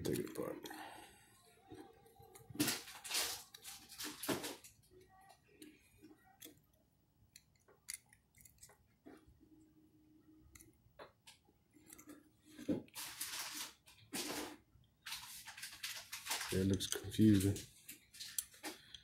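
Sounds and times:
plastic housing clicks and scrapes: 0:07.3 - 0:08.8.

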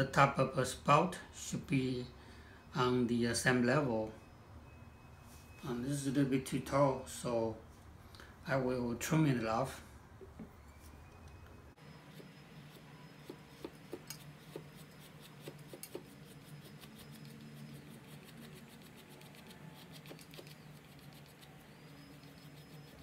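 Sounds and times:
blade scraping clay: 0:11.8 - 0:23.0.

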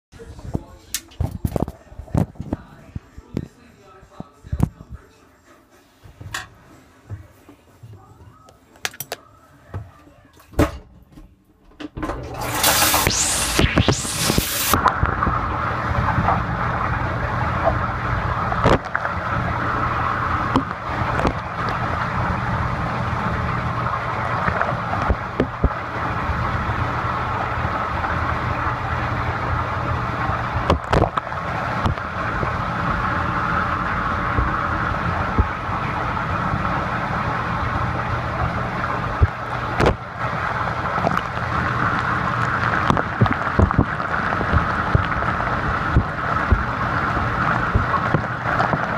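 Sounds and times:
dishwasher pump hum: 0:11.8 - 0:48.9
water spraying: 0:12.4 - 0:14.8.

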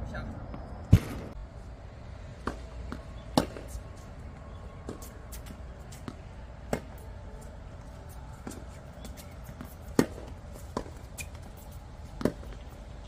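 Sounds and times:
racket striking tennis ball: 0:02.4 - 0:03.8, 0:08.4 - 0:11.4, 0:12.1 - 0:12.6.

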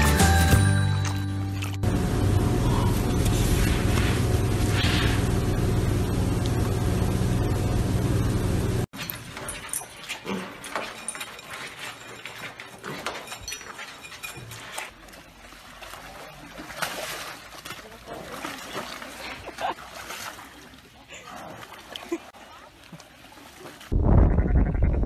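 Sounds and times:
background music: 0:00.0 - 0:01.8.

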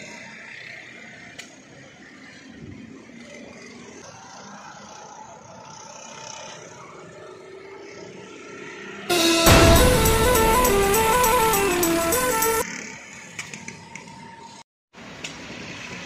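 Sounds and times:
loud music: 0:09.1 - 0:12.6.

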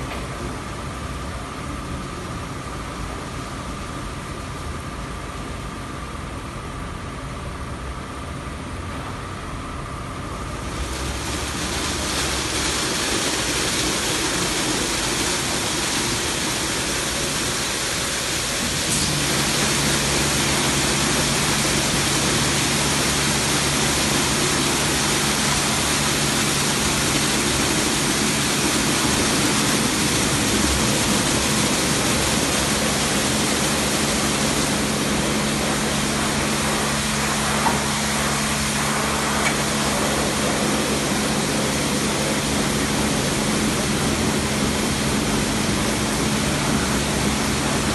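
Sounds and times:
steady motor hum: 0:00.0 - 0:47.9
car wash brushes and water spray: 0:10.6 - 0:47.9.

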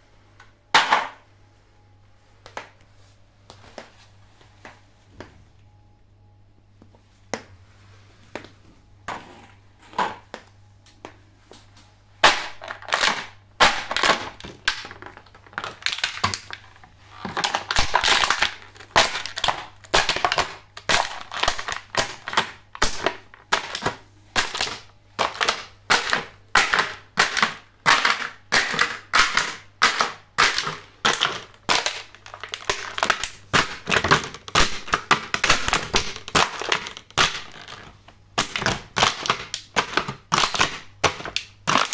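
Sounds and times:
plastic trays crackling and crunching: 0:09.1 - 0:41.9.

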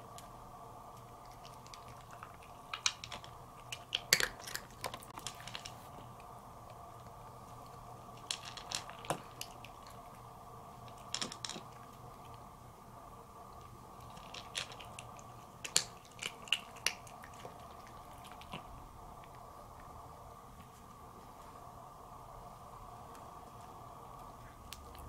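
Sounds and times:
faint background hum: 0:00.0 - 0:25.0
kitten crunching dry kibble: 0:00.9 - 0:12.5, 0:13.4 - 0:20.0.

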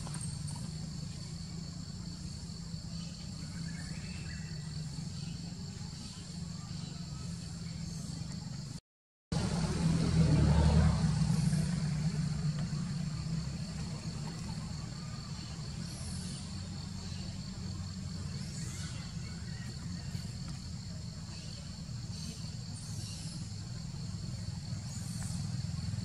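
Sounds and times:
vehicle engine rumble: 0:00.0 - 0:26.0
high insect drone: 0:00.1 - 0:08.8, 0:09.4 - 0:26.0.

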